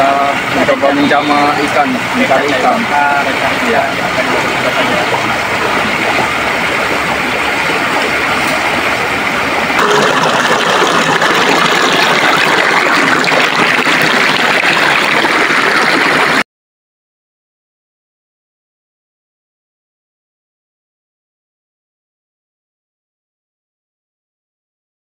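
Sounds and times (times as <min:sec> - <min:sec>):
fast-flowing river rushing: 0:01.6 - 0:16.4.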